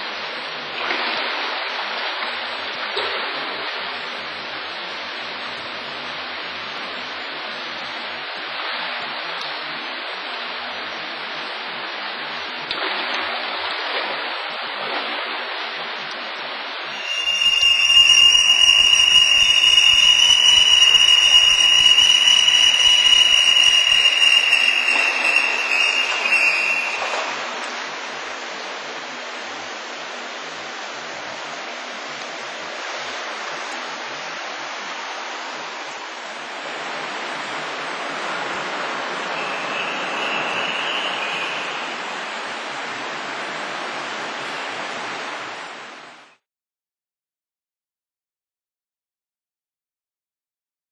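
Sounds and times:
steady hiss: 16.2 - 46.1.

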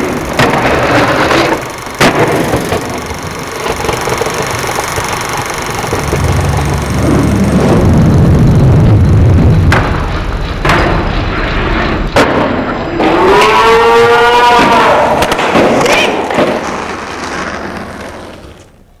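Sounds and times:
skateboard clack: 0.0 - 7.3, 9.7 - 13.1, 14.5 - 18.8
skateboard wheels rolling on concrete: 0.0 - 19.0.

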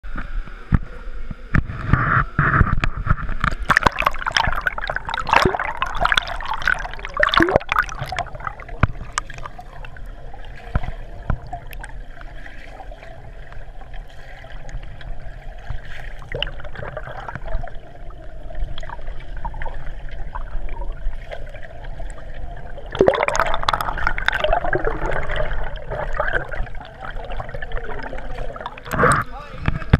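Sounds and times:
pool water splashing: 3.4 - 29.9.

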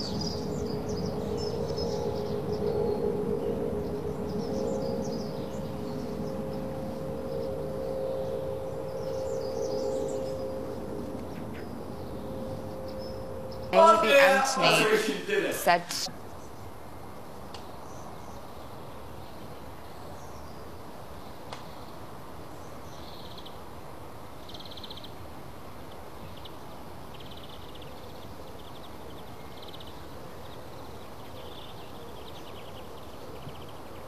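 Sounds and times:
high chirping trills: 0.0 - 16.5
steady low hiss: 0.0 - 34.0.

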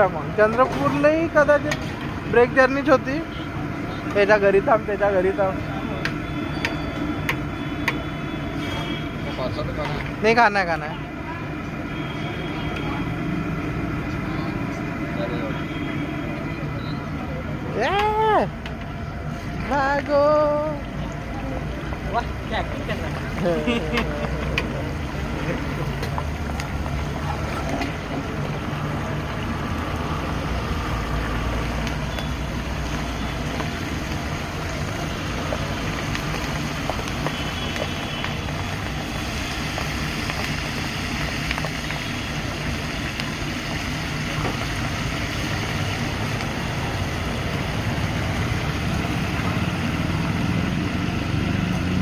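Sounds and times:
food sizzling in hot oil: 0.0 - 52.0.

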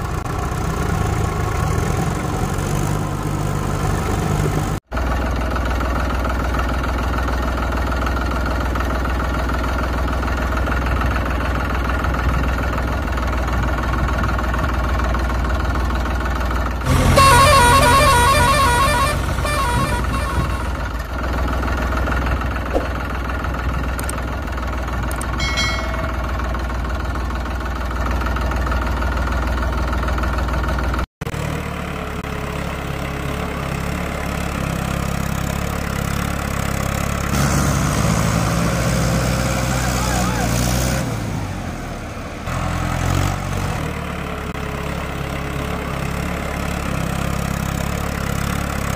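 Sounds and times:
tractor engine running: 0.0 - 48.9
loud horn blast: 16.9 - 21.0.

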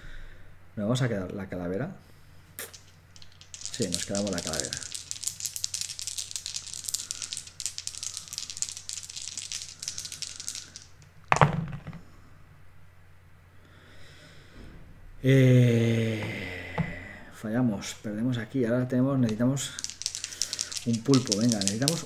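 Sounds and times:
dice rattling: 2.6 - 12.0, 19.2 - 22.0.

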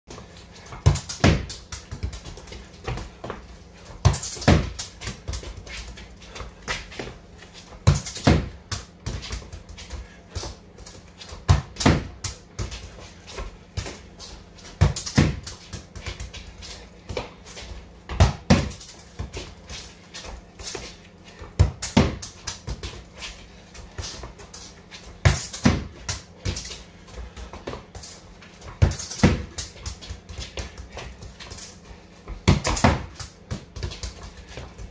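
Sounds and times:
football kicked hard: 0.7 - 3.4, 4.0 - 5.6, 7.8 - 9.6, 11.4 - 12.8, 14.8 - 16.3, 18.1 - 19.4, 21.5 - 23.0, 28.7 - 30.7, 32.3 - 34.2.

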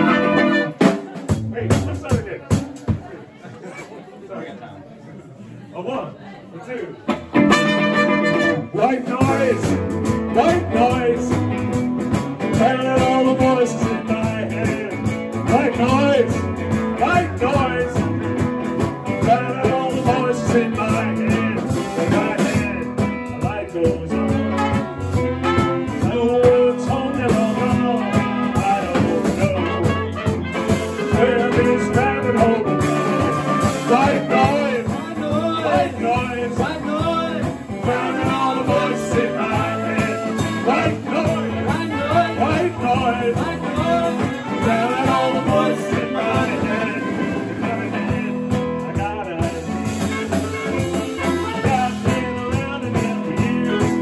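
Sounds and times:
saxophone: 0.0 - 1.1, 7.4 - 8.8, 24.1 - 35.0, 37.5 - 54.0
trumpet: 0.0 - 1.2, 7.4 - 11.8, 24.1 - 54.0
electric guitar: 0.0 - 1.8, 7.1 - 54.0
drums: 0.0 - 4.0, 7.0 - 54.0
sung vocals: 8.4 - 54.0.

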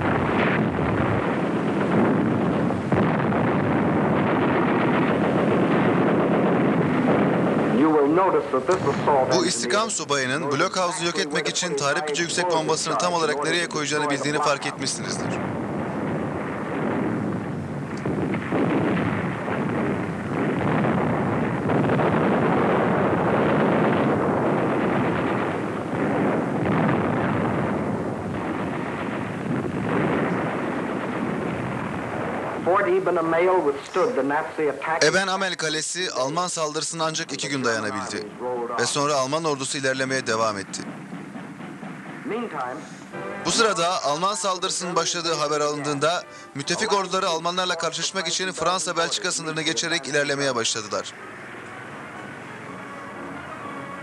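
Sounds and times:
gunfire: 0.0 - 9.6, 14.1 - 34.1
steady rumble: 0.0 - 35.0, 37.8 - 45.6
explosions: 0.0 - 52.6.

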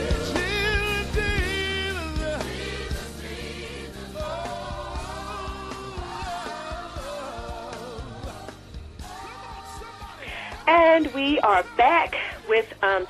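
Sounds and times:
bass and drums: 0.0 - 10.9
voices singing with vibrato: 0.0 - 13.0.

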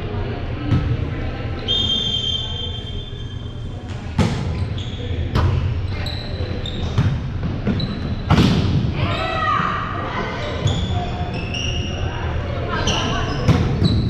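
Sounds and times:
players' voices: 0.0 - 14.0
shoes squeaking on gym floor: 4.5 - 5.3, 5.9 - 8.3
volleyball hits: 6.8 - 9.0.

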